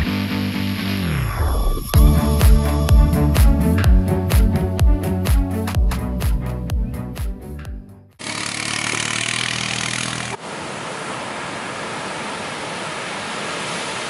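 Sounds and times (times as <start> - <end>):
background music: 0.0 - 8.1
ocean surf breaking: 9.5 - 14.0.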